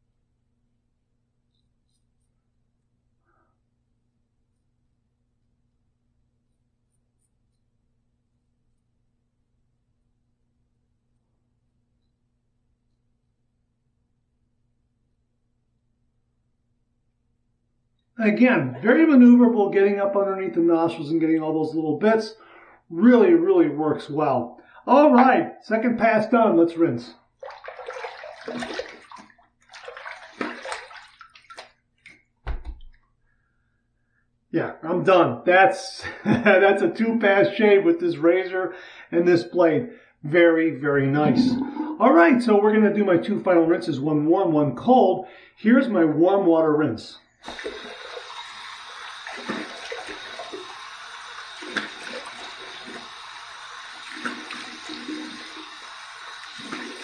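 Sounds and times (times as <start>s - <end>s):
water splashing at a sink: 27.3s - 33.0s, 47.4s - 57.0s
low thump: 32.4s - 32.8s.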